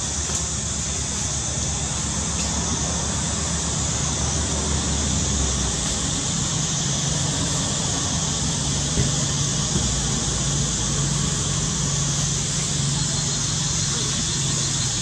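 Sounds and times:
constant high hiss: 0:00.0 - 0:15.0.

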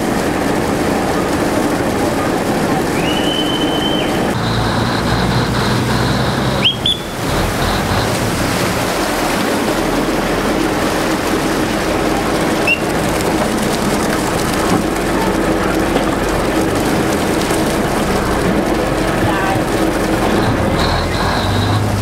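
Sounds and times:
boat diesel engine running: 0:00.0 - 0:22.0
water churning along hull: 0:00.0 - 0:22.0
high whistle blasts: 0:03.0 - 0:07.8, 0:12.6 - 0:12.9.

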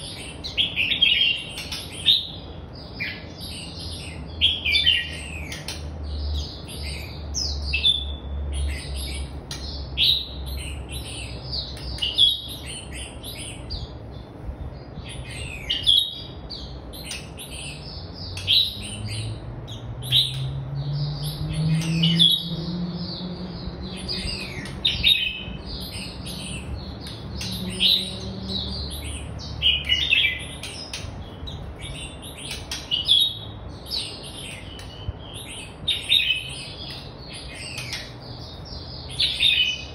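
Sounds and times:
bird chirping and whistling: 0:06.6 - 0:13.9, 0:15.2 - 0:16.4, 0:17.0 - 0:39.9.

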